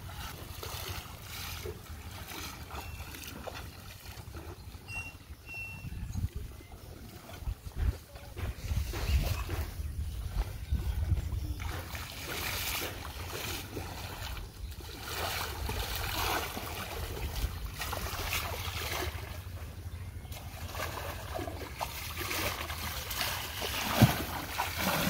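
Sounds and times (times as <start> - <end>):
water splashing from wading: 0.0 - 5.6, 6.8 - 25.0
sharp loud splash: 20.8 - 25.0.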